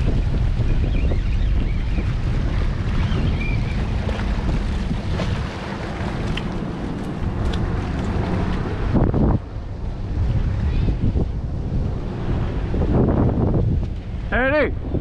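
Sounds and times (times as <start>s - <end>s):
waves washing against rocks: 0.0s - 9.4s
wind buffeting microphone: 0.0s - 15.0s.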